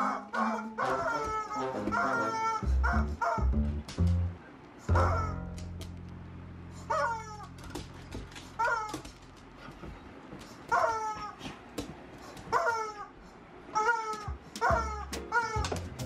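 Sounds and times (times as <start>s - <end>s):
rubber chicken toy squawks: 4.9s - 5.4s, 6.9s - 7.5s, 13.7s - 15.8s.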